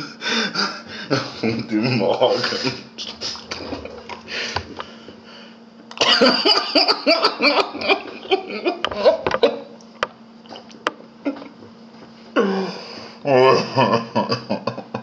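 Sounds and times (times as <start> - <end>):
man laughing hard: 0.0 - 3.4, 6.0 - 9.7, 13.3 - 15.0
faint steady hum: 0.0 - 15.0.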